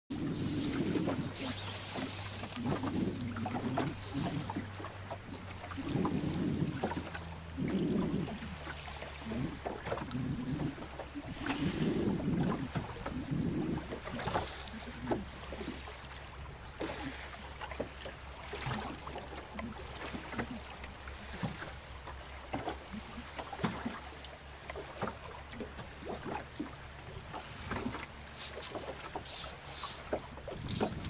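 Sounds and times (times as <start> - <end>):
wind buffeting microphone: 0.1 - 15.5, 30.3 - 31.0
low steady rumble: 0.1 - 23.4
small waves slapping: 0.1 - 31.0.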